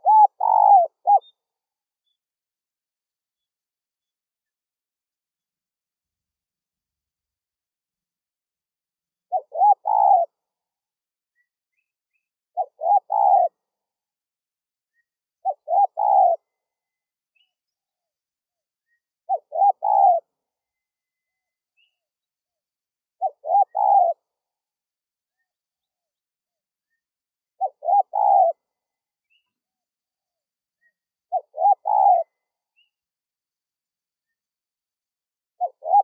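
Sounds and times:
dove cooing: 0:00.0 - 0:01.4, 0:09.3 - 0:10.4, 0:12.6 - 0:13.6, 0:15.4 - 0:16.6, 0:19.3 - 0:20.3, 0:23.2 - 0:24.3, 0:27.6 - 0:28.6, 0:31.3 - 0:32.9, 0:35.6 - 0:36.0.

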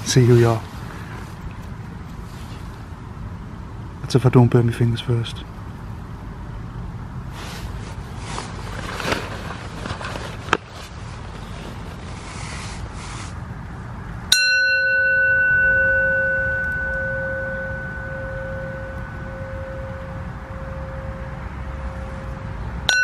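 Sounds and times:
rustling and light crackles: 0:00.0 - 0:03.0, 0:07.3 - 0:13.4
metal singing bowl ringing: 0:14.3 - 0:23.0.

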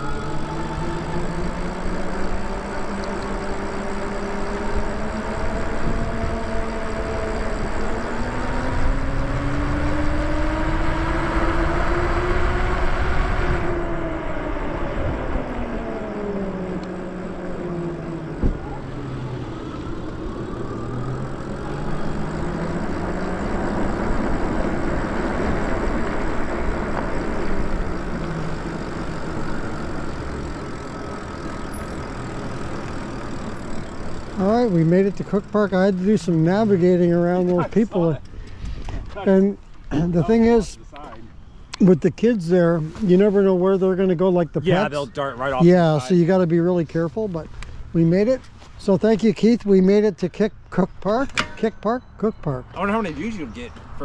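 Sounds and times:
electric bike motor whining: 0:00.0 - 0:48.9
wind rumble on microphone: 0:04.7 - 0:18.9.

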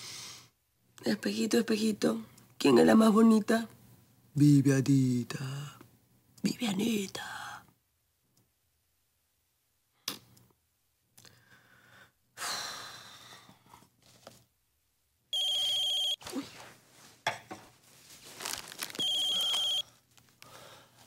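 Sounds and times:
phone ringing electronic tone: 0:15.4 - 0:16.2, 0:19.0 - 0:19.9.

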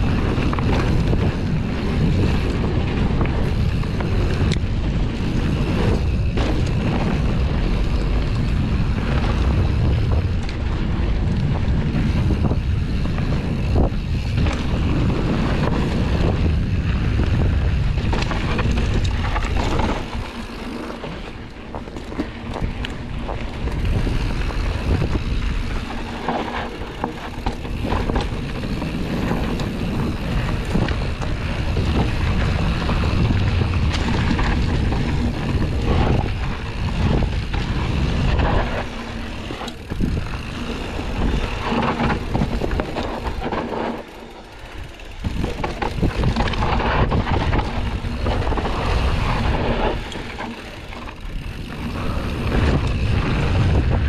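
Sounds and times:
bike rattling and knocking: 0:00.0 - 0:54.0
tyres on dirt trail: 0:00.0 - 0:54.0
wind buffeting microphone: 0:00.0 - 0:54.0.

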